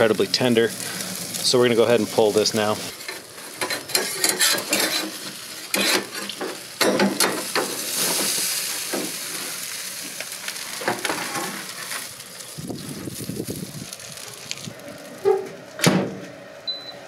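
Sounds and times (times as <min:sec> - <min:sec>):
meat sizzling: 0:00.0 - 0:15.3
steel utensils scraping a grate: 0:02.9 - 0:08.4.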